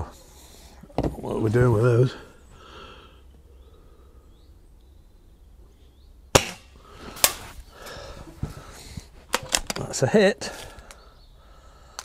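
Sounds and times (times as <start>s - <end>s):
air rifle firing crack: 6.3s - 7.6s.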